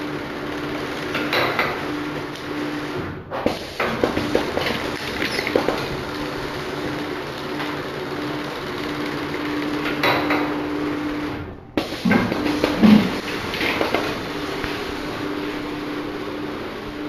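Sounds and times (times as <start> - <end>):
machine humming: 0.0 - 17.0
machine clicks and knocks: 1.0 - 6.3, 9.6 - 10.6, 11.8 - 14.8.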